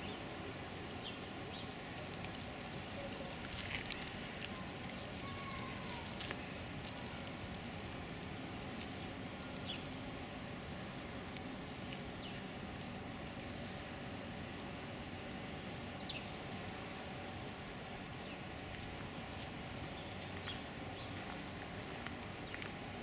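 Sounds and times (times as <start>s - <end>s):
outdoor background noise: 0.0s - 23.0s
faint high bird chirps: 5.0s - 6.2s.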